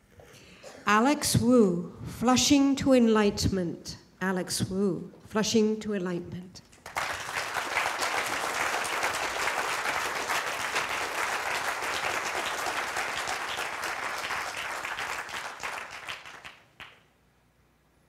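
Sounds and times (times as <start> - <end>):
audience applauding: 6.8 - 17.0.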